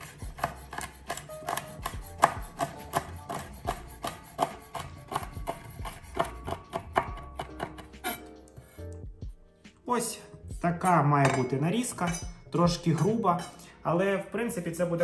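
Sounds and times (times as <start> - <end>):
knife chopping on wooden board: 0.0 - 8.2.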